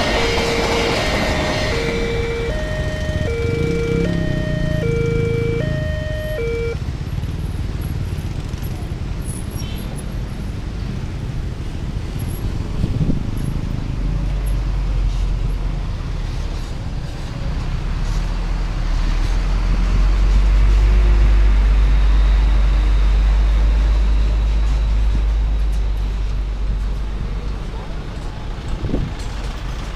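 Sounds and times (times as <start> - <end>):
truck diesel engine rumbling: 0.0 - 6.8
two-tone warning alarm: 0.0 - 6.8, 21.7 - 26.9.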